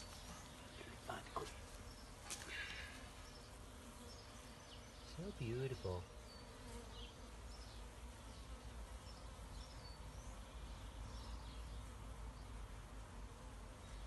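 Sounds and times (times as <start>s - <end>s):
honeybees buzzing: 0.0s - 14.0s.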